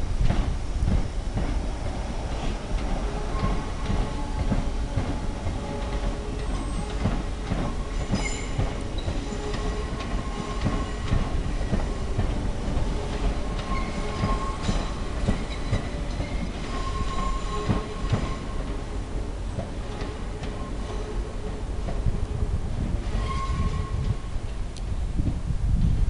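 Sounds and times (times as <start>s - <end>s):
train rumble: 0.0s - 26.0s
wheels clicking over rail joints: 2.4s - 18.9s
high wheel squeals: 7.9s - 12.3s, 12.9s - 18.7s, 23.0s - 24.2s.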